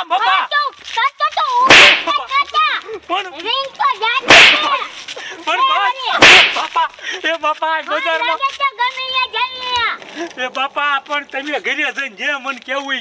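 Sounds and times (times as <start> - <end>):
whip-like cracks of blows: 1.5 - 2.6, 4.2 - 4.9, 6.1 - 6.8.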